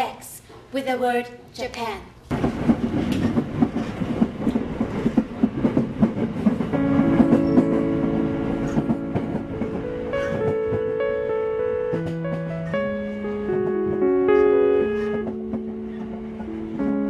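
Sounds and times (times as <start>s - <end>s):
wheels clattering over rail joints: 2.3s - 7.7s
train rumble: 2.3s - 17.0s
held keyboard notes: 5.4s - 17.0s.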